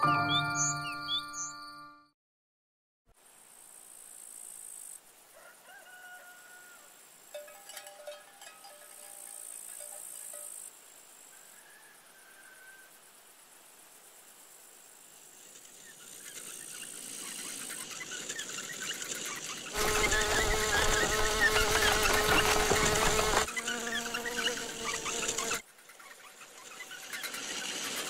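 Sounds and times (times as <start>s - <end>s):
fly buzzing: 15.3s - 28.0s.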